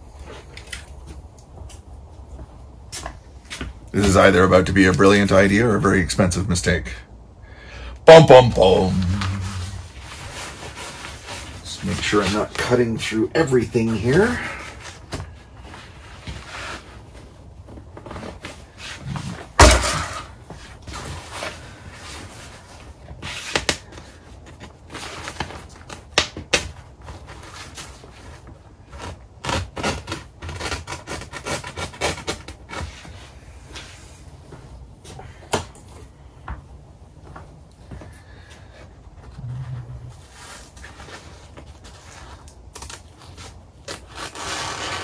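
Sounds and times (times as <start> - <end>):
tent fabric rustling: 8.6 - 19.6, 39.6 - 45.0
sharp handling noise: 17.7 - 21.3.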